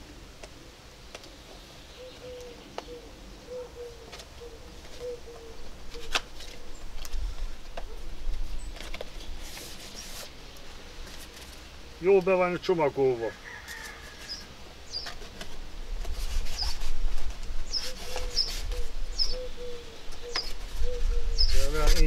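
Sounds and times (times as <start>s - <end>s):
dove cooing: 2.0s - 8.8s, 15.0s - 22.0s.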